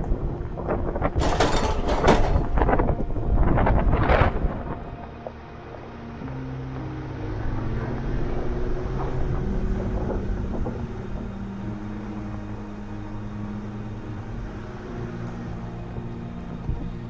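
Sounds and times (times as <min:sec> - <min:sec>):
tyre and wind noise: 0:00.0 - 0:17.0
vehicle engine running: 0:00.5 - 0:17.0.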